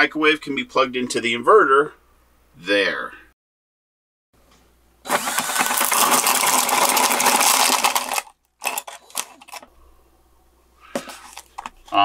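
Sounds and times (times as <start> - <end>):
power drill boring through plywood: 5.1 - 9.6.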